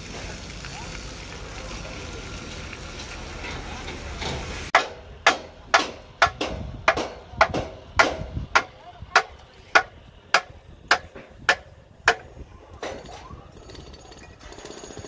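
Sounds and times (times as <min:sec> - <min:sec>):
hammer blows with metallic ring: 0:04.8 - 0:15.0.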